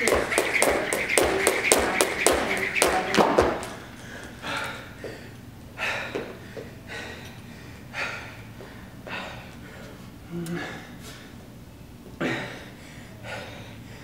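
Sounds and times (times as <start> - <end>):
feet landing taps: 0.0 - 4.3
jump rope slapping floor: 0.0 - 4.4.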